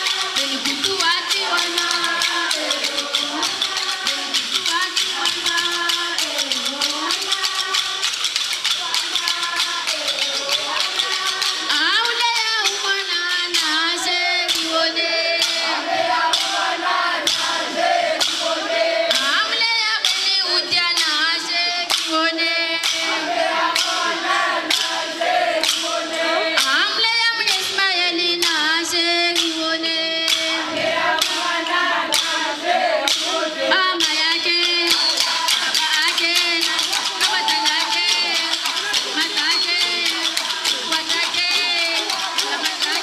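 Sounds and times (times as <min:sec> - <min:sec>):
wooden clappers clacking: 0:00.0 - 0:15.7, 0:23.8 - 0:27.8, 0:28.4 - 0:43.0
women singing in chorus: 0:00.0 - 0:43.0.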